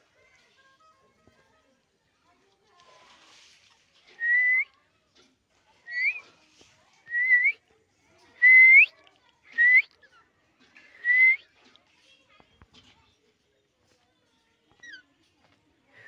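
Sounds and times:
parakeet whistled calls: 5.9 - 6.2.

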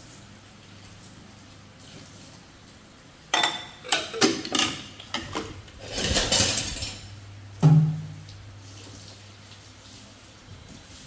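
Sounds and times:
plastic bowls clattering in metal sink: 3.3 - 8.4.

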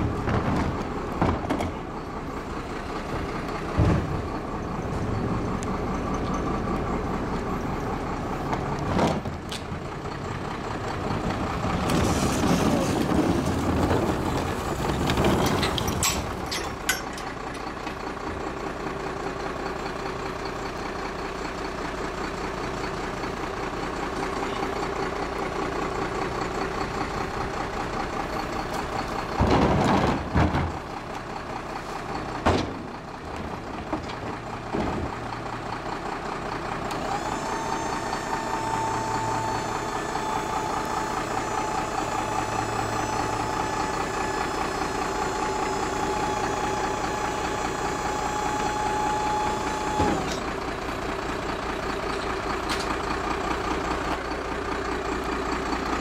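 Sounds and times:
trash cart banging: 0.0 - 2.0, 3.2 - 4.6, 11.2 - 17.6, 29.1 - 31.1, 32.3 - 35.3
diesel truck engine idling: 0.0 - 56.0
hydraulic lift whine: 36.9 - 50.7.

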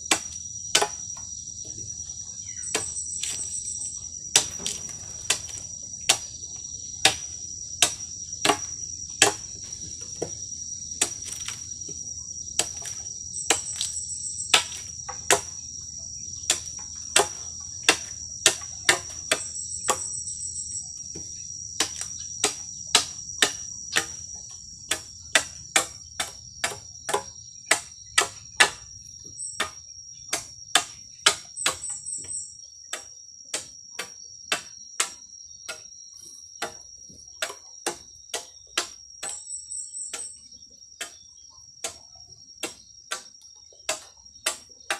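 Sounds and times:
high insect drone: 0.0 - 44.9
machete chopping bamboo: 0.1 - 1.2, 2.6 - 3.6, 4.3 - 6.4, 7.0 - 10.4, 11.0 - 11.8, 12.6 - 15.7, 16.5 - 20.1, 21.8 - 29.0, 29.6 - 32.3, 32.9 - 35.9, 36.6 - 39.4, 41.0 - 44.9.

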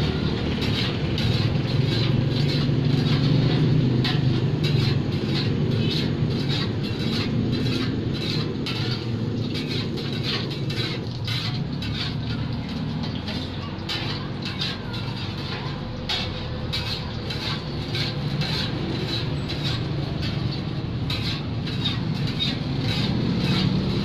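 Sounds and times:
metal spatulas scraping a pan: 0.0 - 24.0.

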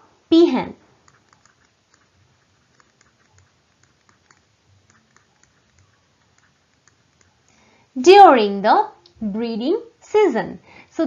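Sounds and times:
stylus tapping on pen tablet: 1.0 - 7.6.

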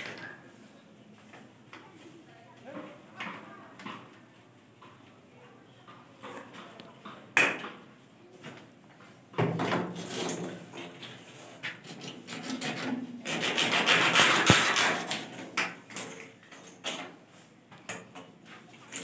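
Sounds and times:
pipe scraping against brick wall: 9.9 - 16.8.

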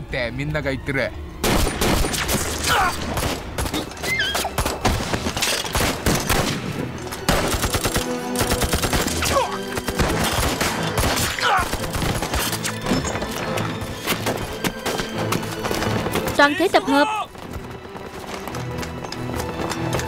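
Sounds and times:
dramatic music: 0.0 - 20.0
rifle and machine-gun fire: 4.6 - 12.4
men shouting: 16.4 - 17.4.

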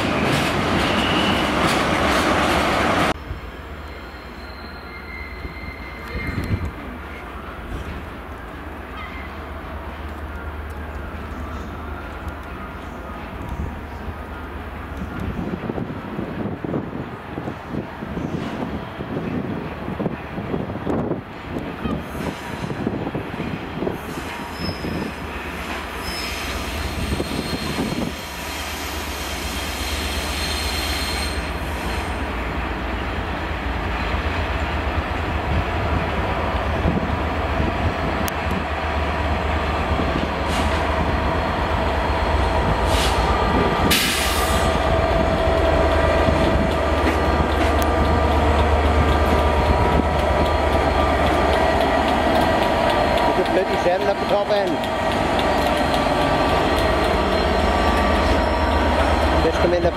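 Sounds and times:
diesel locomotive engine hum: 0.0 - 59.9
wheels squealing on track: 4.1 - 6.8, 24.1 - 25.2, 26.0 - 28.9.

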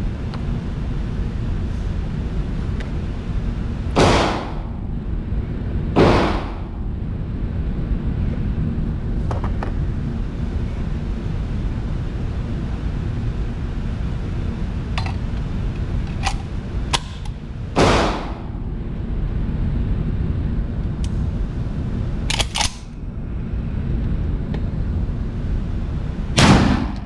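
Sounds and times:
steady low rumble: 0.0 - 27.0
gunshots echoing: 4.0 - 4.7, 6.0 - 6.7, 17.8 - 18.4, 26.4 - 27.0.

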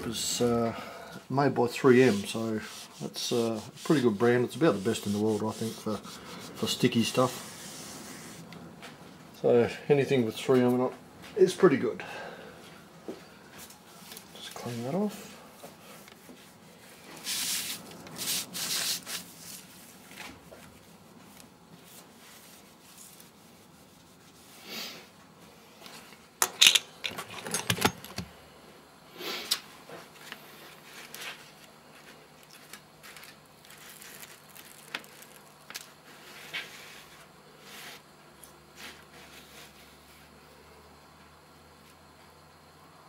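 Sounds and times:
handling knocks and clicks: 26.4 - 28.3.

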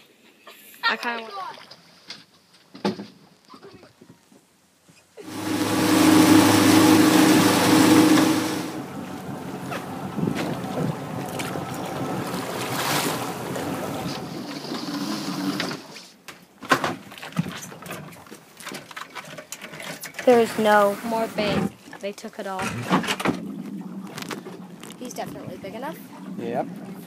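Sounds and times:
boat motor humming: 5.2 - 16.0, 22.6 - 27.0
water splashing: 5.2 - 16.2, 17.0 - 27.0.

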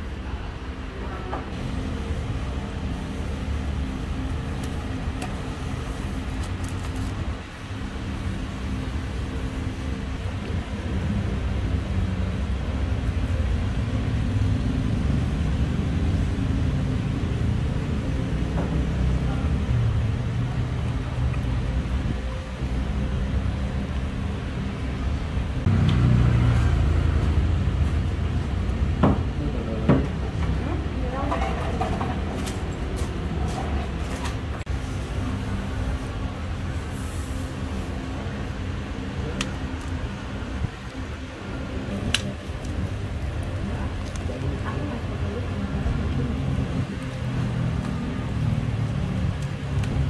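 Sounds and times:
vehicle engine rumbling: 1.5 - 50.0
vehicle engine passing: 25.6 - 29.0.

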